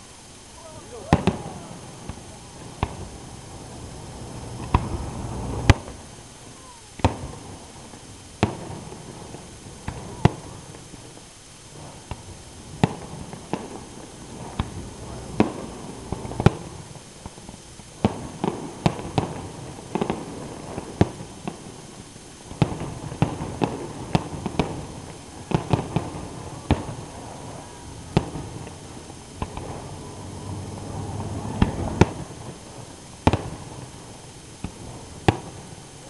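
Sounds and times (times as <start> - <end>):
fireworks bursting with sharp bangs: 0.0 - 36.0
low rumble: 1.2 - 6.4.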